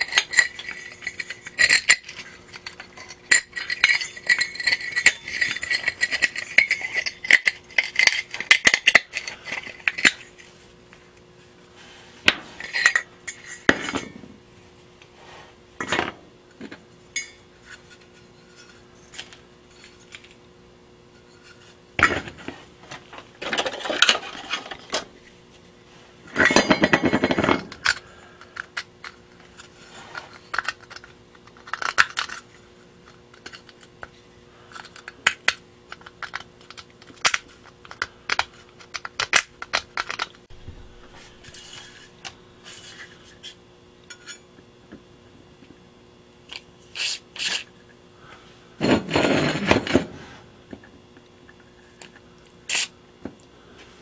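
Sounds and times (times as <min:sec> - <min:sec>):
metal scraping: 0:40.5 - 0:43.4.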